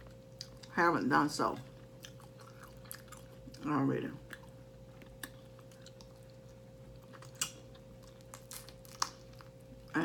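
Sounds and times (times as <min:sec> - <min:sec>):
wet mouth chewing sounds: 0:01.7 - 0:03.6, 0:04.2 - 0:09.9.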